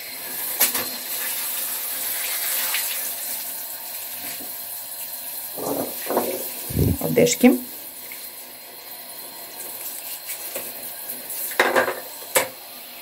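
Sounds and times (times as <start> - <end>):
shower spraying onto tiled floor: 0.3 - 12.6.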